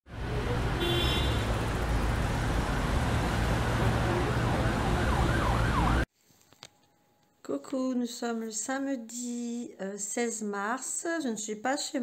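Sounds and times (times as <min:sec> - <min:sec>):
siren wailing: 0:03.8 - 0:06.1.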